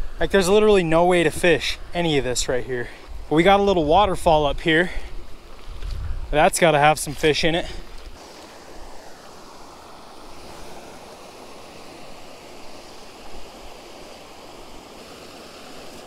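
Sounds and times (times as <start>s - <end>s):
waterfall rushing: 6.5s - 16.0s.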